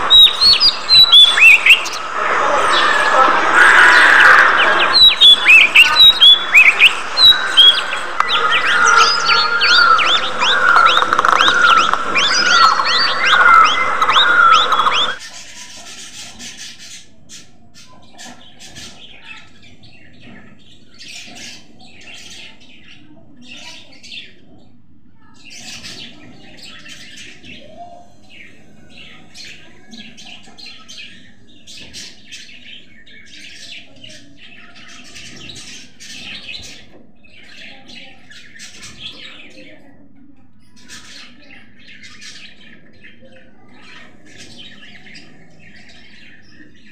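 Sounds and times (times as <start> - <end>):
chicks begging cheeps: 0.0 - 16.4
budgerigars chattering: 0.0 - 22.7.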